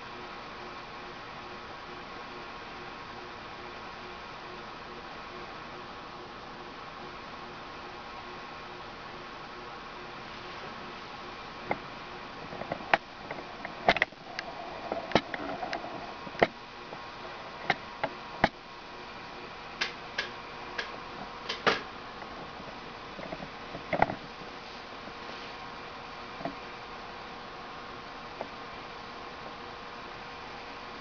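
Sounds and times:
faint hum and hiss: 0.0 - 31.0
lamp base clicking and popping: 19.8 - 21.9.

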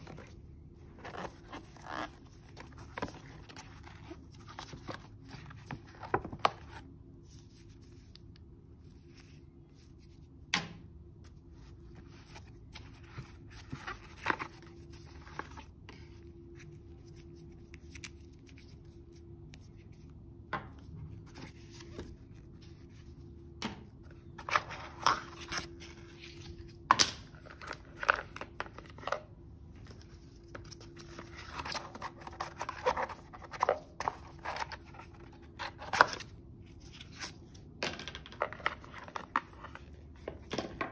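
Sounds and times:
faint steady hum: 0.0 - 40.9
cardboard box rustling: 12.0 - 16.1.

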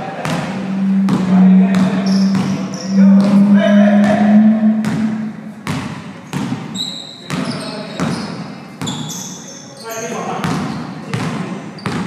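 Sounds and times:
loud steady low tone: 0.3 - 5.7
short high squeaks: 0.5 - 5.6, 6.7 - 10.2
basketball bouncing on gym floor: 5.6 - 6.7, 7.3 - 8.2, 10.4 - 12.0.

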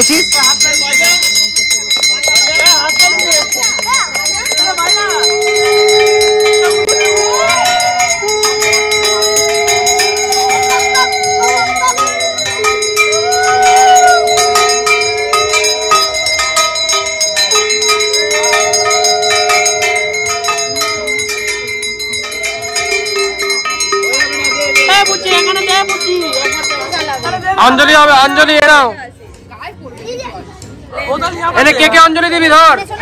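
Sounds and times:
hand bell rung rapidly: 0.0 - 28.9
conch shell blasts: 4.9 - 26.4.

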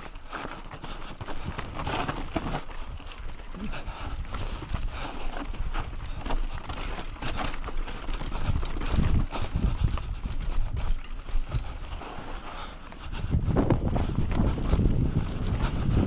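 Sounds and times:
mountain bike rattling over rocks: 0.0 - 16.0.

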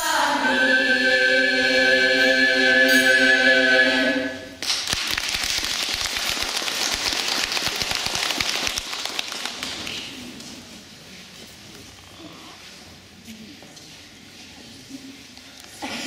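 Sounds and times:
children's choir singing: 0.0 - 4.6
audience applauding: 4.6 - 10.2.

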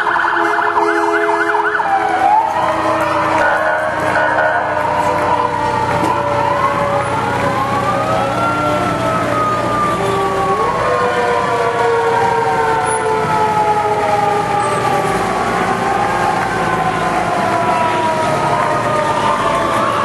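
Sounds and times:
fire engine sirens wailing: 0.0 - 20.0
trucks rumbling past: 0.0 - 20.0.

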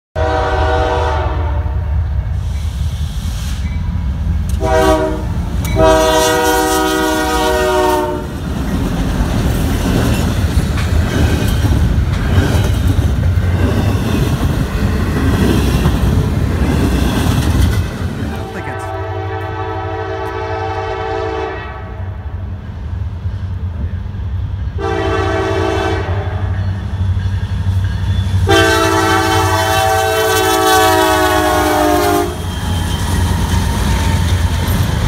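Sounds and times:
locomotive horn blasts: 0.2 - 1.9, 4.6 - 8.3, 18.3 - 22.1, 24.8 - 26.6, 28.4 - 32.4
diesel locomotive engine rumble: 0.2 - 35.0
freight cars clattering on rails: 8.2 - 18.5.

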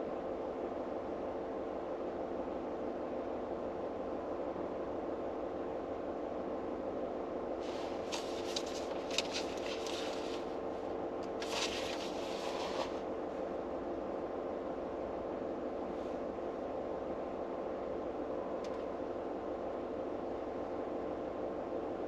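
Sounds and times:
paper rustling: 7.6 - 10.5, 11.3 - 13.0.

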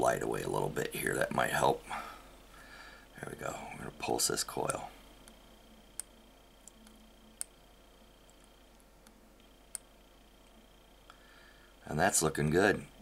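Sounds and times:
faint ticks: 4.6 - 7.6, 8.2 - 11.2.

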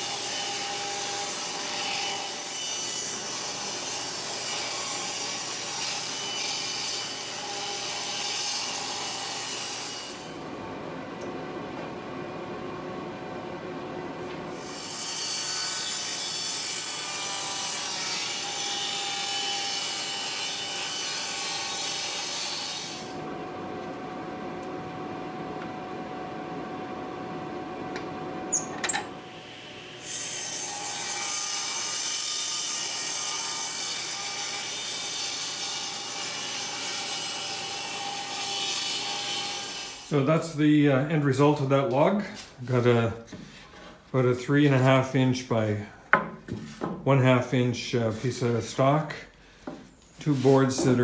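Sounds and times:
table saw cutting wood: 0.0 - 10.4, 14.5 - 23.3, 28.5 - 41.7, 50.0 - 51.0.

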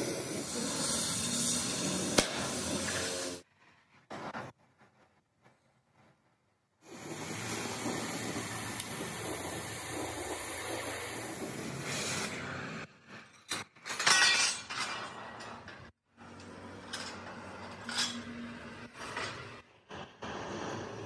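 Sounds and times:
cutting torch hissing: 0.0 - 3.5, 6.8 - 12.9, 18.9 - 21.0.

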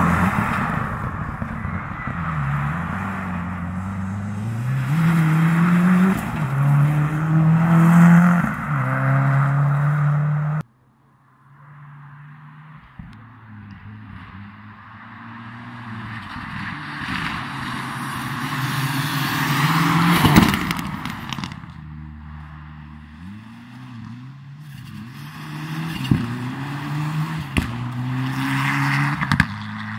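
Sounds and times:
rally car engine at high revs: 2.7 - 10.6, 22.8 - 29.9.

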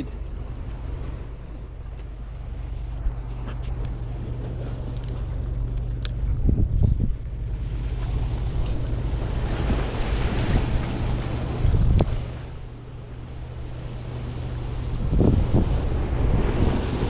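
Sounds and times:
wind buffeting microphone: 0.2 - 17.0
surf washing over rocks: 6.9 - 17.0.

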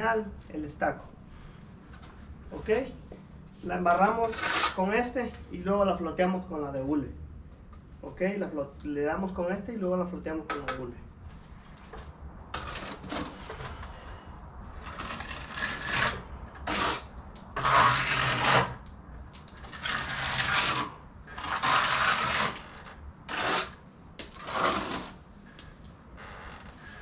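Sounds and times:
trowel scraping wet stucco: 3.6 - 5.4, 12.5 - 14.1, 14.7 - 25.2.

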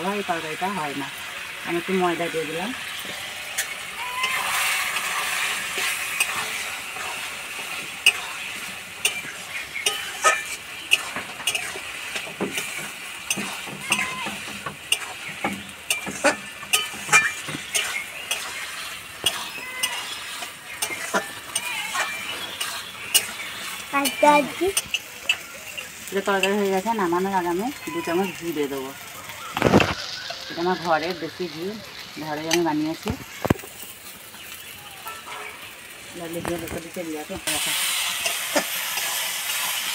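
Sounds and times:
curry sizzling: 0.0 - 39.9
metal spatula scraping a pan: 1.9 - 27.1, 36.6 - 39.9.

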